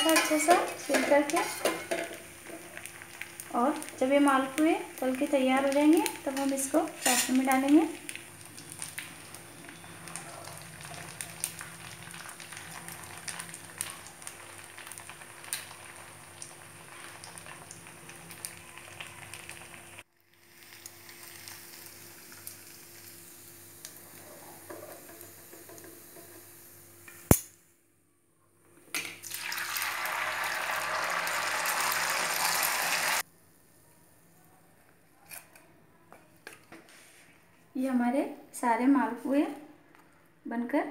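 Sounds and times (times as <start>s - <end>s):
metal tongs clicking on pan: 0.0s - 1.1s
batter sizzling in hot oil: 0.0s - 27.4s, 29.2s - 33.3s.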